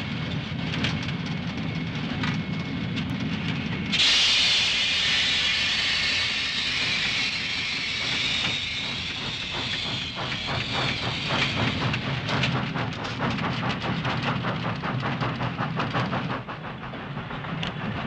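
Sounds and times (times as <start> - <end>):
steam locomotive rumble: 0.0 - 18.0
loud hiss of steam: 3.9 - 12.3.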